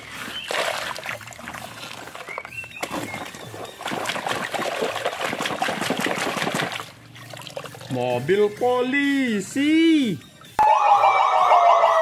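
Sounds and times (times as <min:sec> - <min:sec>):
water splashed against truck: 0:00.0 - 0:08.2
water trickling and splashing: 0:00.0 - 0:10.6.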